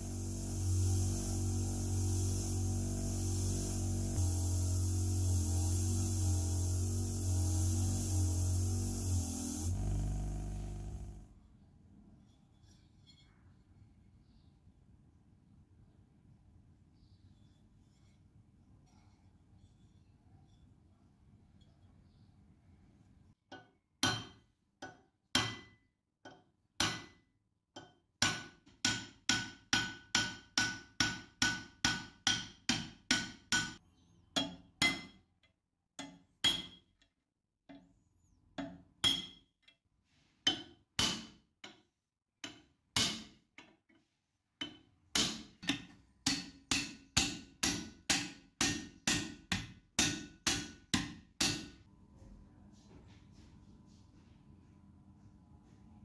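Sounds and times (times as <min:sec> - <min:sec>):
hammer striking metal punch: 0:23.6 - 0:25.8, 0:26.8 - 0:27.2, 0:28.2 - 0:33.8, 0:34.4 - 0:35.2, 0:36.0 - 0:36.8, 0:39.0 - 0:39.4, 0:40.5 - 0:41.8, 0:42.4 - 0:43.4, 0:44.6 - 0:51.8.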